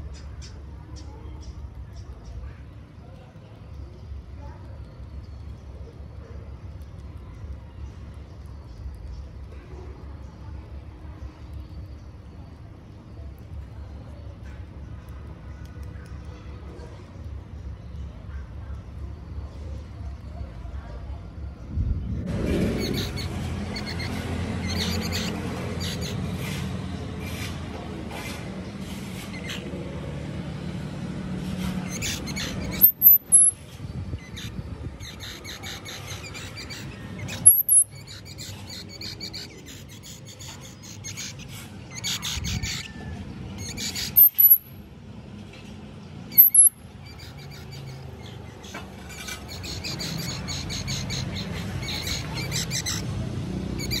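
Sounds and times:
baby squirrels squeaking: 22.4s - 27.4s, 28.3s - 29.8s, 31.5s - 44.8s, 46.3s - 54.0s
squirrels chittering clicks: 31.8s - 33.6s, 35.1s - 41.2s, 43.6s - 44.7s, 46.3s - 53.0s.

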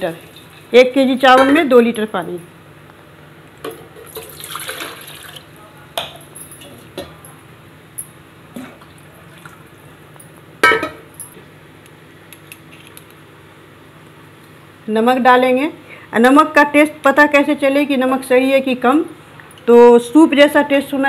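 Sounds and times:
water pouring into pot: 4.0s - 5.5s
pots and utensils clinking: 10.6s - 11.4s.

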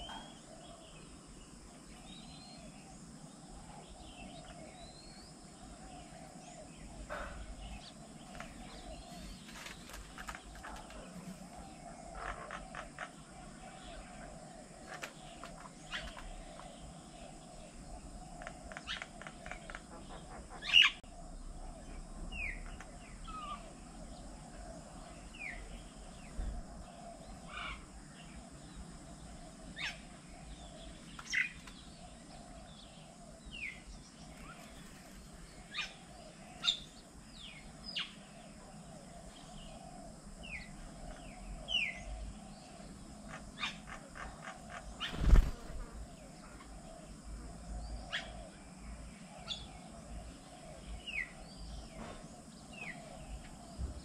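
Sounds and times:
birds chirping: 0.0s - 54.0s
outdoor background noise: 0.0s - 54.0s.

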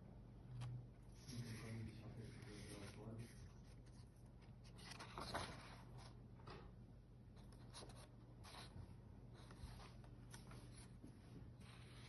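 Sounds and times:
low room hum: 0.0s - 12.0s
book pages turning: 0.5s - 6.2s, 9.4s - 12.0s.

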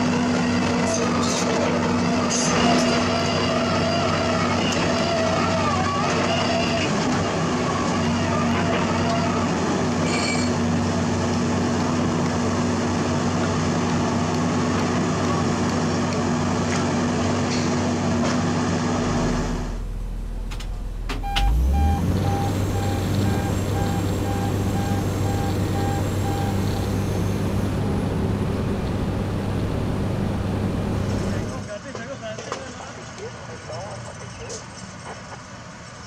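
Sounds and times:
drilling rig diesel engine running: 0.0s - 31.7s
excavator diesel engine running: 10.6s - 31.7s
short beeps: 21.1s - 27.4s.

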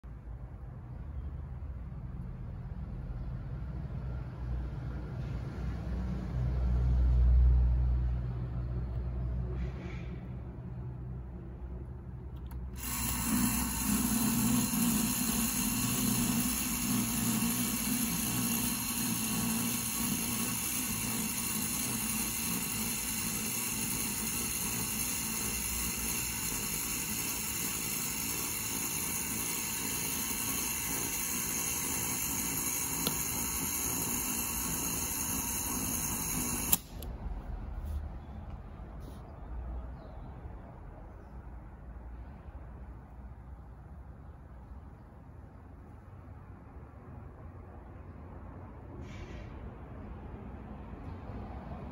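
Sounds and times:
toy motor whirring: 12.4s - 37.0s
toy switch click: 36.4s - 37.1s.

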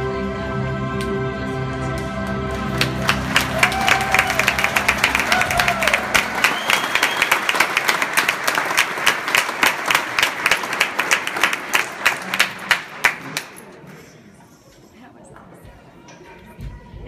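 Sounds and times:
audience applauding: 1.9s - 13.9s.

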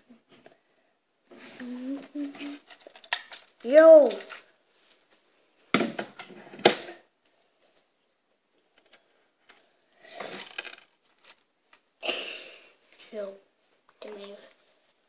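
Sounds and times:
plastic toy clattering on a table: 2.3s - 4.5s, 10.2s - 11.4s.

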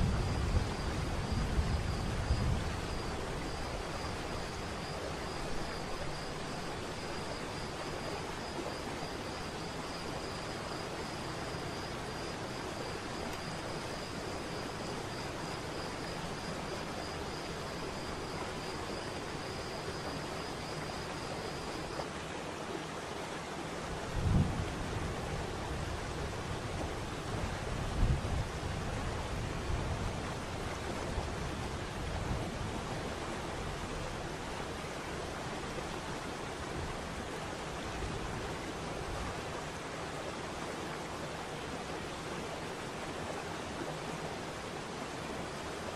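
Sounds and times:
high insect trill: 0.0s - 22.1s.

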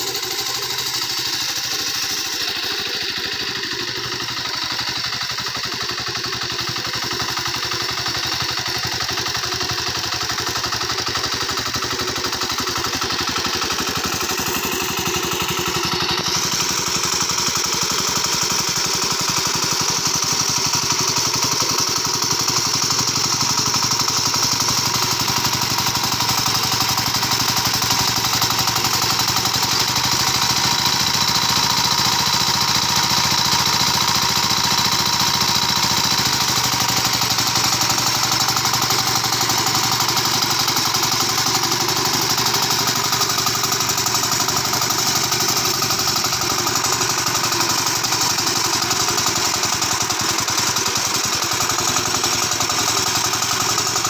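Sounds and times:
small engine chugging: 0.0s - 54.0s.

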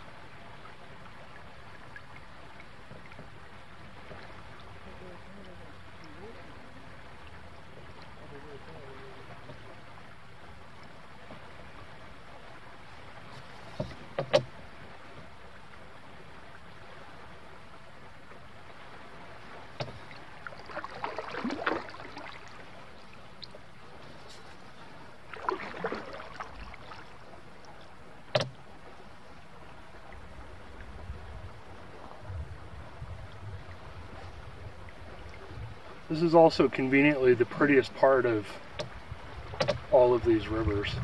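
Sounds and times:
moving water: 0.0s - 41.0s
paddle splashing in water: 0.0s - 41.0s
knocks on canoe: 13.3s - 15.2s, 19.7s - 20.1s, 28.3s - 28.6s, 38.6s - 39.9s.

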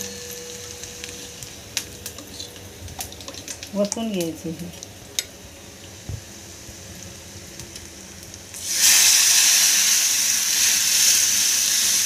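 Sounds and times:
hot oil sizzling: 0.0s - 12.0s
loud hiss of batter poured in oil: 8.5s - 12.0s.

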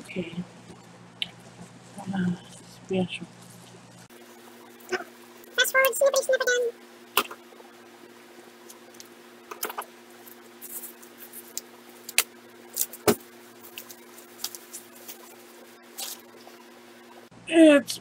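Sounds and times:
steady low hum: 0.0s - 18.0s
plastic wrapping crinkling: 8.7s - 16.7s.

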